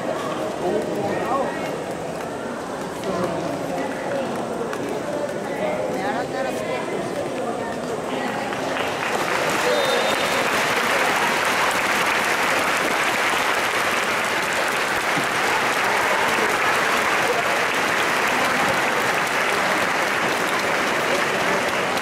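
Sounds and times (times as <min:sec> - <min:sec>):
spectators applauding: 0:08.3 - 0:22.0.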